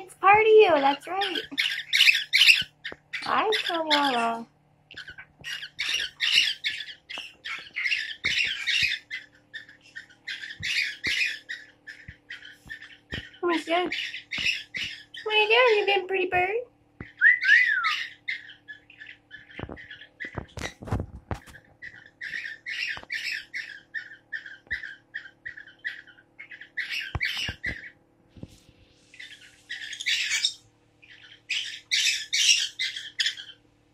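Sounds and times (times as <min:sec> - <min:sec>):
parrot chirping: 0:00.0 - 0:16.1, 0:17.0 - 0:28.0, 0:29.0 - 0:33.7
parrot whistle: 0:17.1 - 0:18.4.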